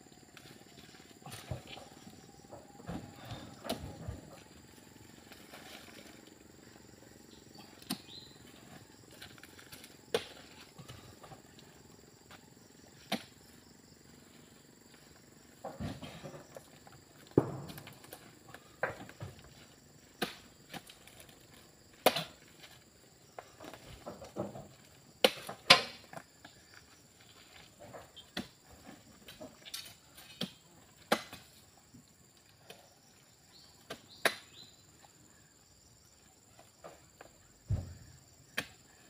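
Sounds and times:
high insect drone: 0.0 - 39.0
fruit bunches knocking and thudding: 0.9 - 6.2, 7.5 - 11.6, 12.2 - 13.6, 15.4 - 26.7, 36.6 - 38.9.

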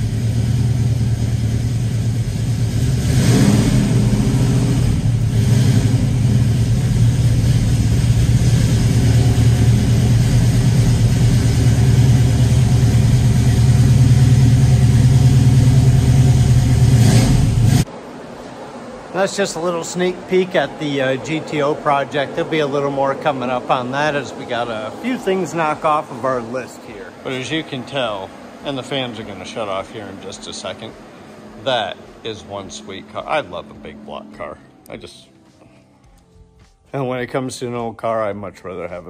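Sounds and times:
car engine running: 0.0 - 17.9, 20.0 - 35.2.

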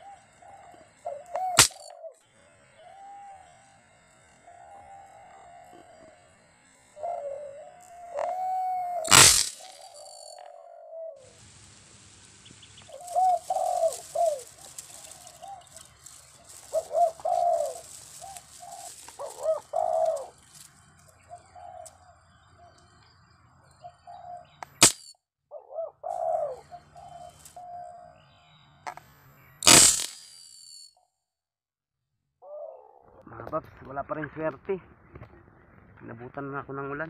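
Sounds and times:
doves cooing: 0.0 - 11.5, 12.5 - 23.1, 23.7 - 24.6, 25.5 - 28.2, 32.4 - 33.5
sharp crack: 1.6 - 1.9, 9.0 - 10.4, 24.6 - 25.1, 29.6 - 30.6.

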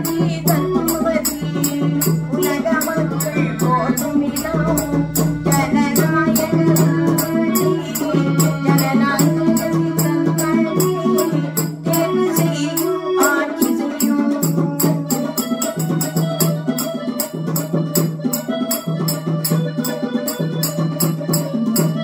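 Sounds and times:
melodic accompaniment: 0.0 - 9.5, 14.9 - 22.0
woman singing folk song: 0.0 - 15.5
quick percussion beat: 0.0 - 22.0.

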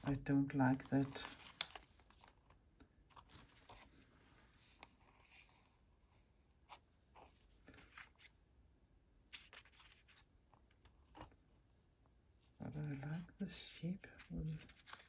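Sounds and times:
paper and fabric rustling: 0.0 - 2.5, 3.1 - 6.0, 12.6 - 15.0.

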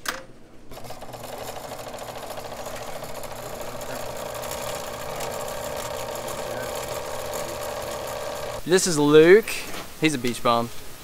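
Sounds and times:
motor whirring: 0.7 - 8.6.

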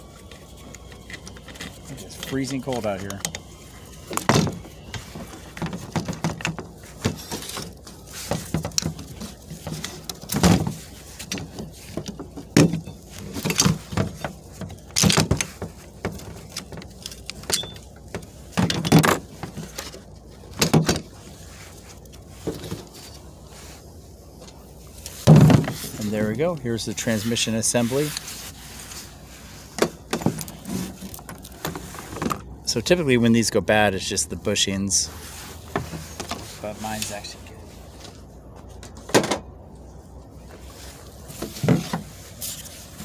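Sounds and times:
metal parts clinking and knocking: 4.1 - 21.1.

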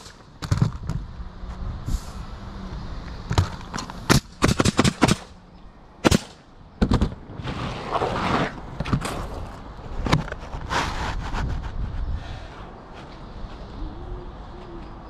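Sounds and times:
nail gun firing: 4.1 - 5.4, 6.0 - 7.2.

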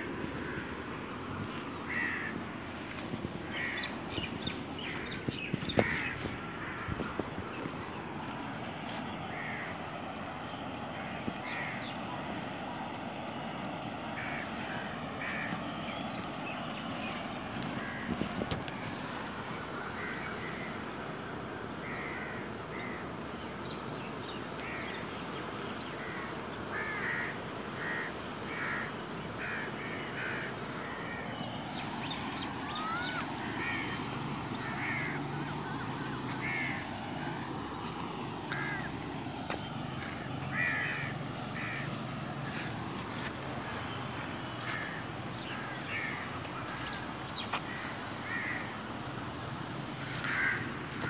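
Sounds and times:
crows cawing: 0.0 - 8.4, 9.0 - 10.0, 10.9 - 12.4, 14.0 - 16.8, 17.6 - 23.2, 24.6 - 25.0, 26.0 - 51.0
steady background hiss: 0.0 - 51.0.

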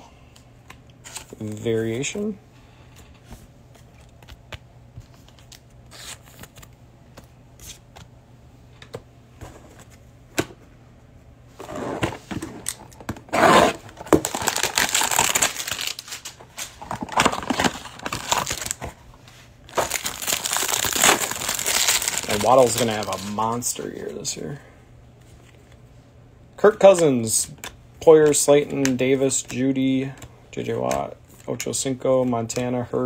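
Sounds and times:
box tearing: 13.3 - 16.0
plastic wrapper crinkling: 14.1 - 18.8, 19.7 - 23.6.

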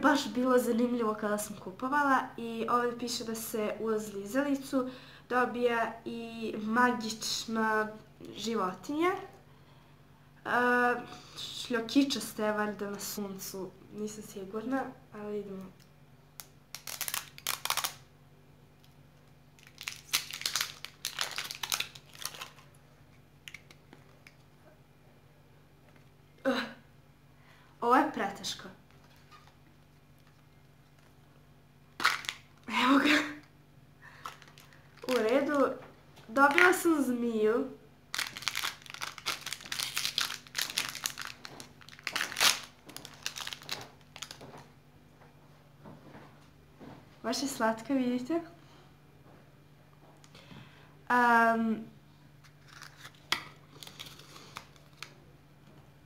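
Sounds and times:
wrapper crinkling and tearing: 16.4 - 18.1, 18.8 - 22.8, 23.4 - 24.5, 29.0 - 31.2, 32.0 - 32.7, 34.1 - 35.7, 38.1 - 44.6, 52.4 - 55.2.

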